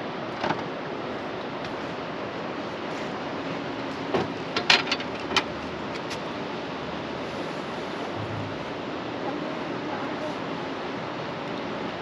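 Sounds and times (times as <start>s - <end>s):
water noise: 0.0s - 12.0s
wind: 0.0s - 12.0s
net handle knocking on boat: 8.1s - 8.7s.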